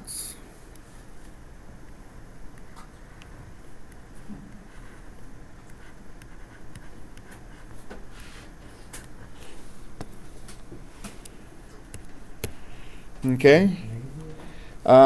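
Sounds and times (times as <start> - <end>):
low microphone hum: 0.0 - 15.0
stylus tapping on pen tablet: 11.8 - 12.6.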